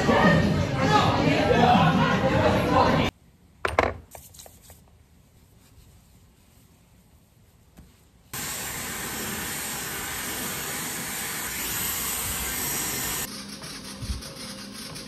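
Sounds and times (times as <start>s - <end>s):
hair dryer blowing: 8.4s - 13.3s.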